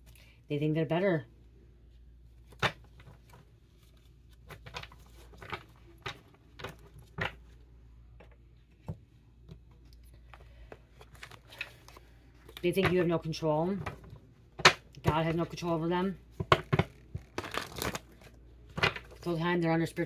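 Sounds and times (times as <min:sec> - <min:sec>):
low steady hum: 0:00.0 - 0:20.0
cards tapping and clicking: 0:02.5 - 0:03.4, 0:04.4 - 0:07.6, 0:16.4 - 0:19.2.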